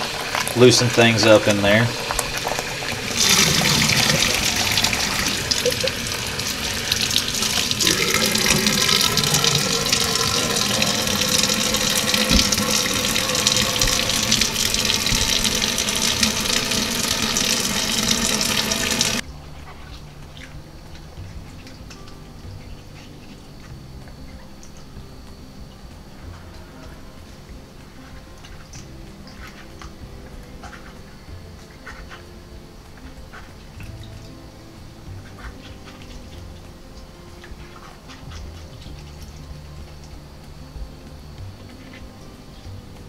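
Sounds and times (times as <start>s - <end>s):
faucet water splashing into bowl: 0.0s - 19.2s.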